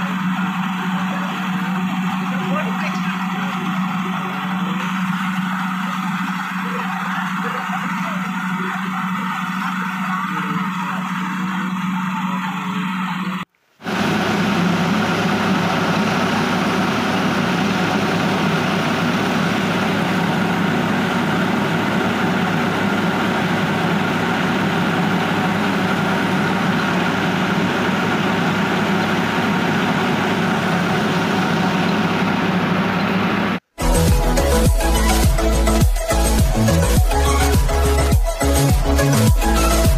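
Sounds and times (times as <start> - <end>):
rice mill and tractor engine humming: 0.0 - 39.9.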